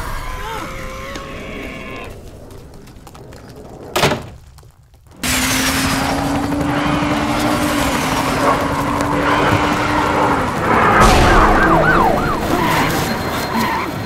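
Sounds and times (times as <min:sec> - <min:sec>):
low drone: 0:10.6 - 0:14.0
loud dense din: 0:10.9 - 0:13.4
high whistle falling in pitch: 0:11.0 - 0:13.9.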